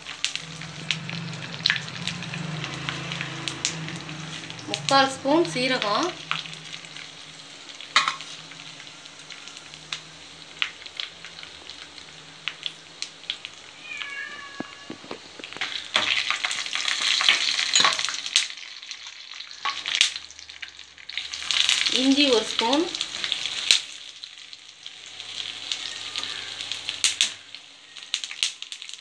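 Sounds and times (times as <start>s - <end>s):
spices sizzling in hot oil: 0.0s - 13.8s, 14.8s - 29.0s
crackling pops: 6.2s - 13.8s, 14.6s - 18.6s, 25.2s - 29.0s.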